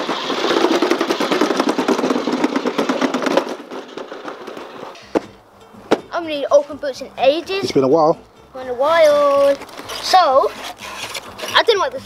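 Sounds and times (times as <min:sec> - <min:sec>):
plastic wheels rattling over bricks: 0:00.0 - 0:05.2, 0:09.2 - 0:12.0.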